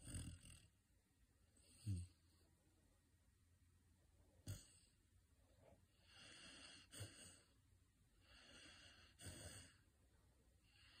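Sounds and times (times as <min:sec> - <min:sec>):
puppy snoring: 0:00.0 - 0:00.8, 0:01.6 - 0:02.4, 0:04.4 - 0:05.0, 0:05.9 - 0:07.6, 0:08.2 - 0:09.9.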